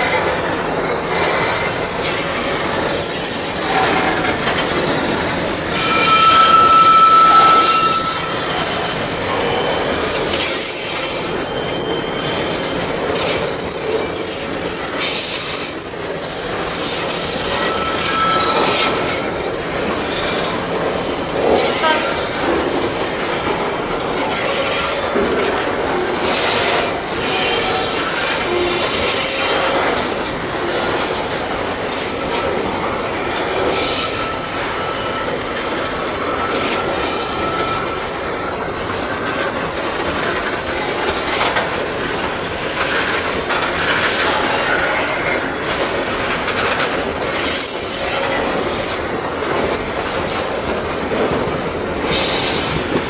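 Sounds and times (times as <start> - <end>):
train rolling rumble: 0.0 - 53.0
wheels screeching on rails: 0.0 - 53.0.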